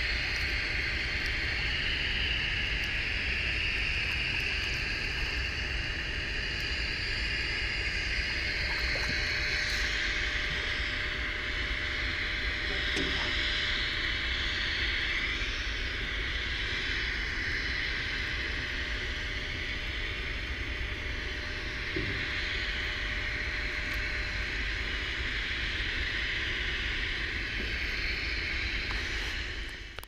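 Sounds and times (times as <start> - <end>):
constant high hiss: 0.0 - 30.0
wind rumble on microphone: 3.7 - 11.2.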